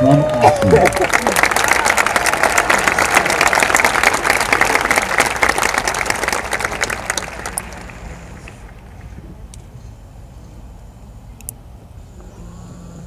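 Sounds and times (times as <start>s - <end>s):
crowd applauding: 0.0s - 8.8s.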